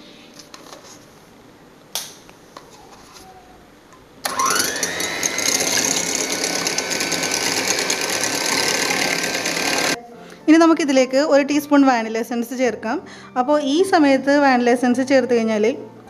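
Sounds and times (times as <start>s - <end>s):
electric hand mixer whirring: 4.2s - 10.0s.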